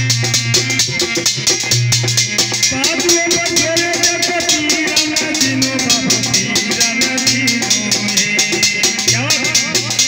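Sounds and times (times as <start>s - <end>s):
dholak drum beating: 0.0s - 10.0s
harmonium notes: 0.0s - 10.0s
man singing: 2.6s - 10.0s.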